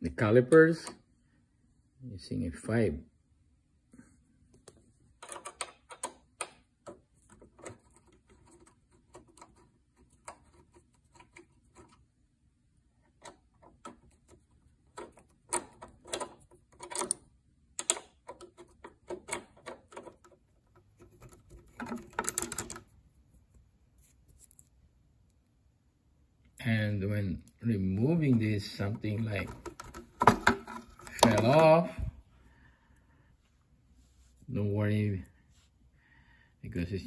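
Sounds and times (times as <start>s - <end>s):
allen key clicking on bolts: 15.0s - 20.3s.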